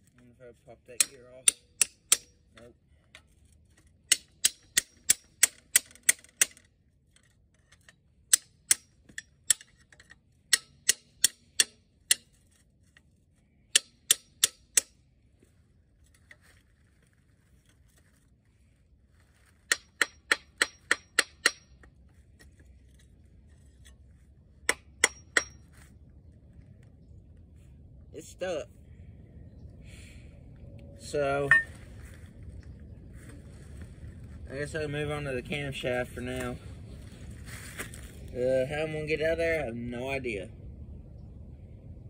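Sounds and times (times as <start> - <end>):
hammer striking steel pry bar: 1.0 - 2.5, 4.1 - 6.6, 8.3 - 9.8, 10.5 - 12.4, 13.7 - 15.0, 19.7 - 21.9, 24.6 - 25.7.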